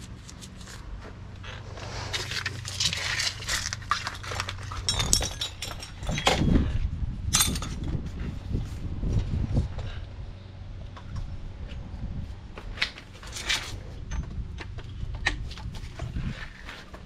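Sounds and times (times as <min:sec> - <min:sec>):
low steady hum: 0:00.0 - 0:17.0
metal tools clinking and rattling: 0:02.1 - 0:08.0, 0:12.8 - 0:17.0.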